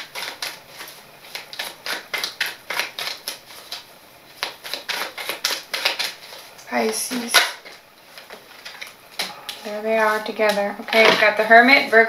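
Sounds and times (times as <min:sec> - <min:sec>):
cards being shuffled: 0:00.0 - 0:08.9.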